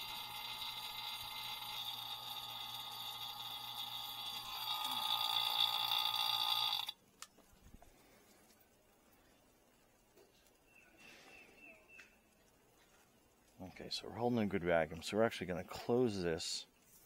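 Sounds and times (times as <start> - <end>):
vacuum pump whining: 0.0 - 7.0.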